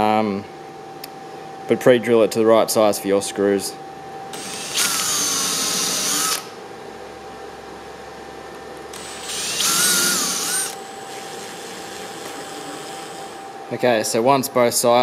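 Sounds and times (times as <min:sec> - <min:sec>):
cordless drill whirring: 0:04.4 - 0:06.5, 0:08.9 - 0:13.4.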